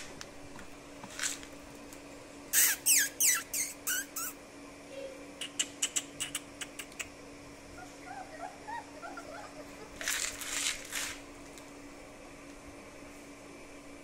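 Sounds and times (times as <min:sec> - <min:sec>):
faint steady hum: 0:00.0 - 0:14.0
puppies squealing: 0:02.5 - 0:04.4, 0:07.7 - 0:10.6.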